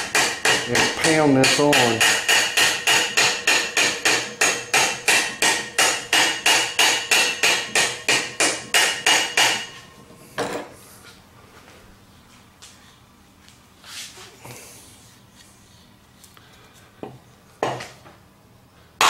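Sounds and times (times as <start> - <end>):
hammer blows on metal: 0.0 - 9.8.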